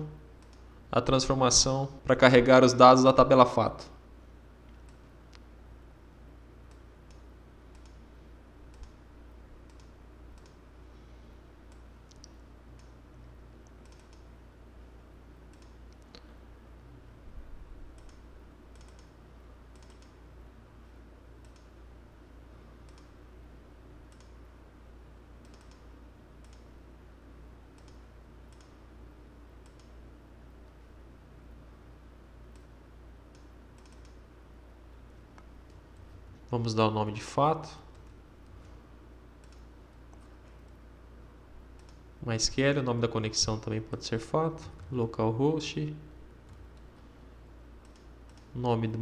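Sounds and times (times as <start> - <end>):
low electrical hum: 0.0 - 49.0
computer mouse clicking: 0.4 - 0.7, 4.7 - 5.4, 6.6 - 8.0, 8.7 - 9.0, 9.6 - 10.6, 11.7 - 13.0, 13.6 - 14.3, 15.5 - 16.3, 17.9 - 20.2, 21.4 - 21.8, 22.8 - 23.2, 24.1 - 24.4, 25.4 - 26.7, 27.7 - 28.8, 29.6 - 30.0, 32.5 - 32.7, 33.3 - 34.2, 37.9 - 38.8, 39.4 - 40.8, 41.7 - 42.0, 47.8 - 48.6.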